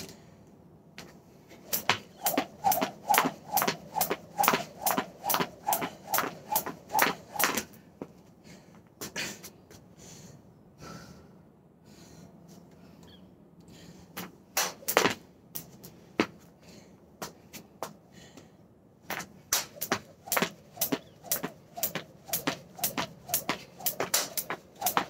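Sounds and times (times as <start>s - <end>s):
jump rope slapping wooden deck: 1.7s - 7.8s, 14.2s - 16.3s, 19.1s - 25.0s.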